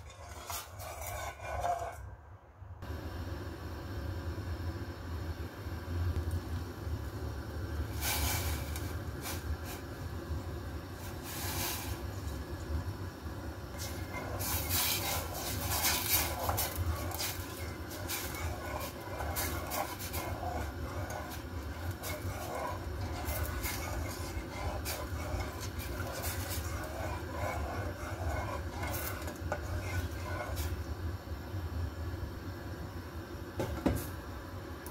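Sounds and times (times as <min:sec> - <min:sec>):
spatula scraping in saucepan: 0:00.0 - 0:02.2, 0:07.9 - 0:10.1, 0:10.8 - 0:12.8, 0:13.7 - 0:30.9
steady low hum: 0:00.0 - 0:34.9.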